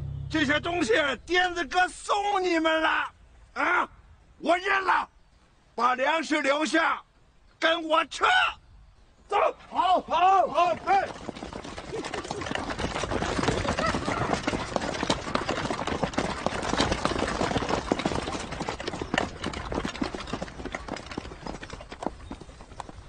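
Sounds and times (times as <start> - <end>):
horse-drawn cart: 9.8 - 23.0
people walking clatter: 10.1 - 23.0
horse hooves clip-clopping: 10.2 - 23.0.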